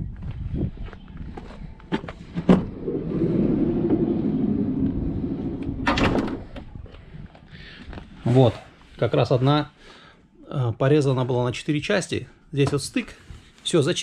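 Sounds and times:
sliding door rumbling along track: 2.4 - 6.7
door clunk: 5.6 - 6.7.

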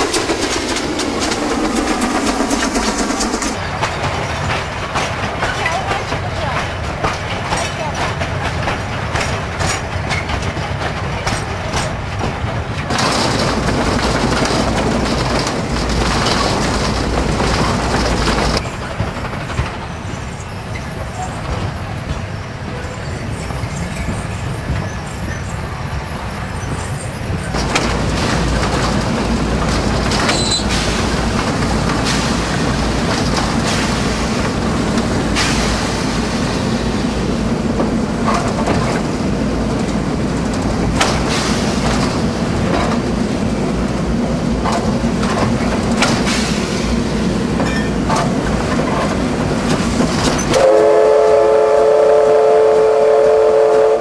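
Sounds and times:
wagons clanking and knocking: 0.0 - 22.4, 27.4 - 50.6
steam locomotive rumbling: 0.0 - 54.0
steam whistle blowing: 50.5 - 54.0.

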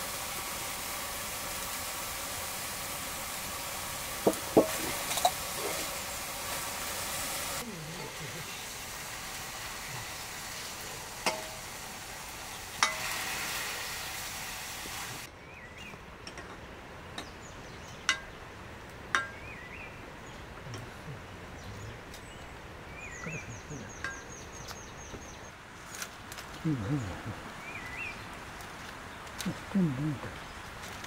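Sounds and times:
food sizzling in a wok: 0.0 - 15.3
bird chirps: 19.3 - 25.6, 26.6 - 28.3.

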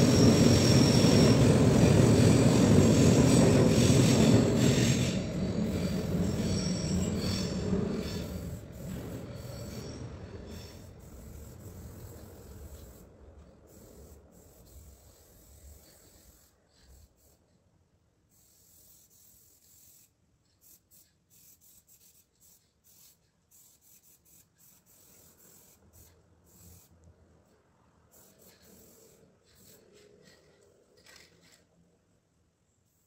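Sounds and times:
spray can hissing: 10.5 - 17.4, 18.3 - 27.0, 28.1 - 31.6.

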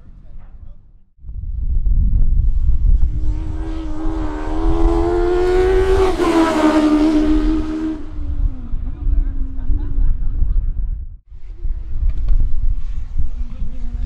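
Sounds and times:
racing car passing: 3.0 - 9.6.

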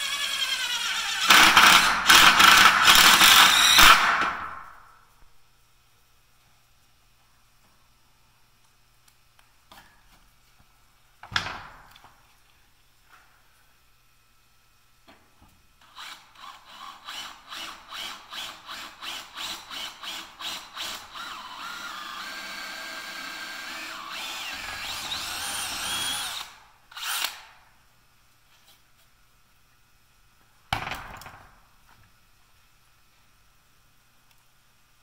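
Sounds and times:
drill motor whining: 0.0 - 3.9, 15.8 - 27.4.

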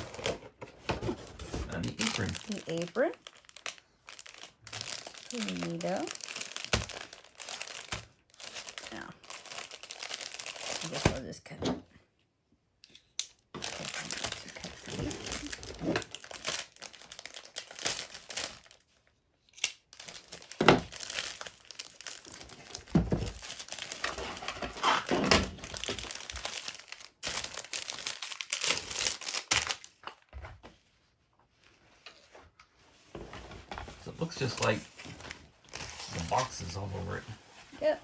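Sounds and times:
plastic bag crinkling and tearing: 1.7 - 11.3, 13.6 - 30.3, 34.2 - 37.2.

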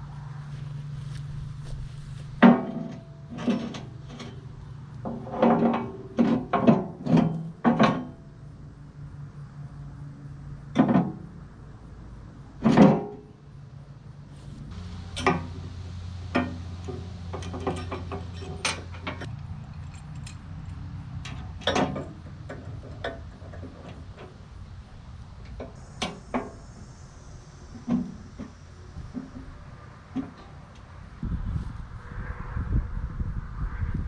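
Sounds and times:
low hum: 14.3 - 21.2, 24.5 - 34.0
metal tools clanking: 16.4 - 24.0.

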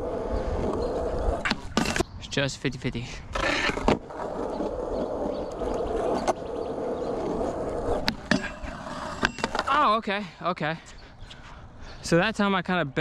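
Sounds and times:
skateboard wheels rolling on concrete: 0.0 - 2.1, 3.0 - 10.1.

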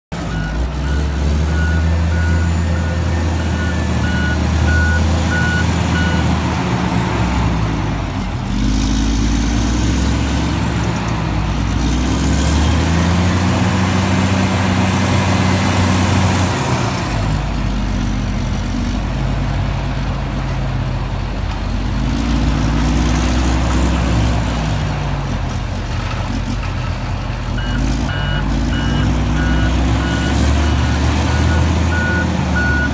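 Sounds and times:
diesel engine revving: 0.0 - 32.9
reverse alarm beeping: 0.3 - 6.2, 27.6 - 32.9.

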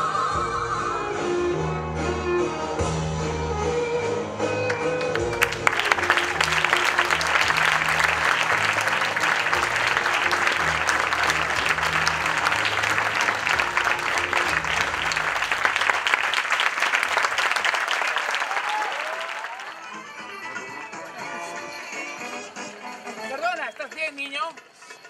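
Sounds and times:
low music notes: 1.1 - 16.6
audience applauding: 4.7 - 20.7.

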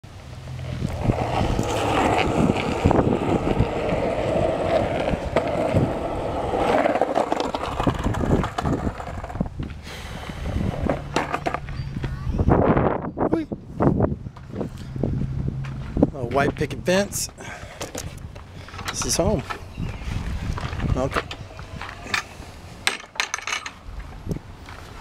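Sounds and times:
wind on microphone: 0.5 - 16.9, 19.0 - 22.5.

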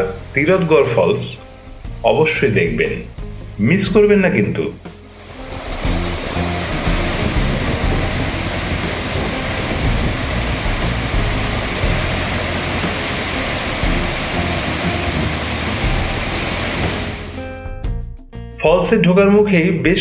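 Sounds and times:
faint background music: 0.0 - 20.0
waterfall crashing: 5.2 - 17.4.

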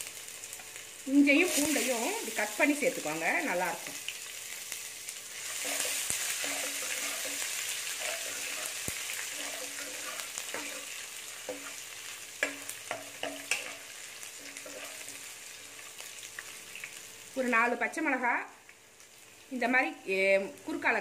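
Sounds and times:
spices sizzling in hot oil: 0.0 - 21.0
steel spoon scraping a pan: 5.4 - 15.2.

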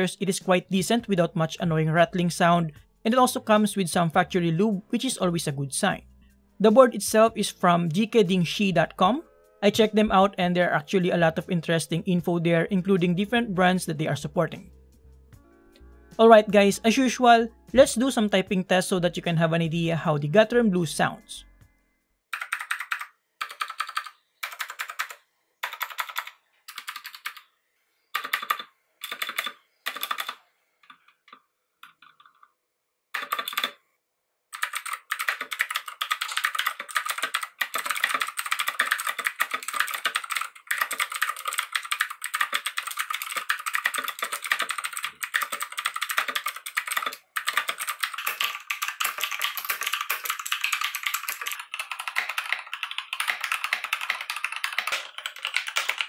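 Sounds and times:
clicky keyboard typing: 22.3 - 27.4, 28.2 - 32.5, 33.2 - 33.8, 34.5 - 56.0.

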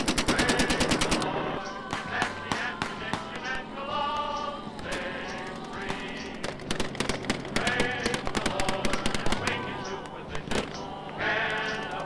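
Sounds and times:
rapid gunfire: 0.0 - 1.3, 1.9 - 3.6, 4.9 - 9.8
voices: 0.0 - 12.0.

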